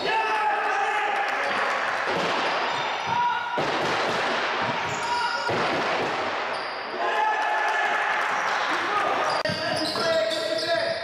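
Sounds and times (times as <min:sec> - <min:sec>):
voices of players and crowd: 0:00.0 - 0:03.6, 0:04.4 - 0:05.6, 0:06.2 - 0:11.0
ball bouncing on court: 0:09.3 - 0:10.2.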